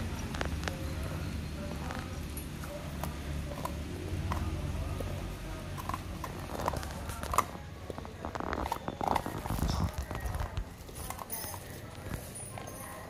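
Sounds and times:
dog licking and chewing: 1.7 - 13.0.

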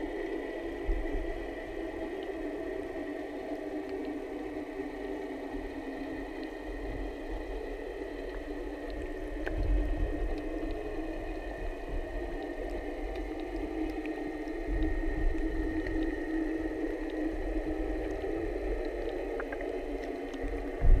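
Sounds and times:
muffled underwater hum: 0.0 - 21.0
faint ticks: 0.2 - 21.0
low rumbling swells: 20.5 - 21.0.

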